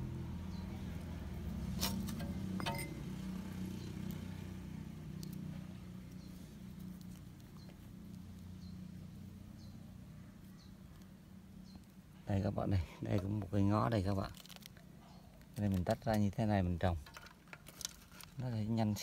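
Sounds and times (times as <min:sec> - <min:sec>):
low engine-like hum: 0:00.0 - 0:14.1.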